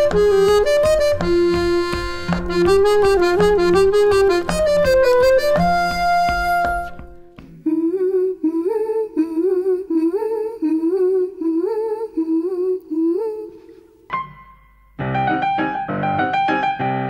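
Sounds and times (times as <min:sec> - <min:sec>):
piano notes ringing out: 0:14.1 - 0:17.0.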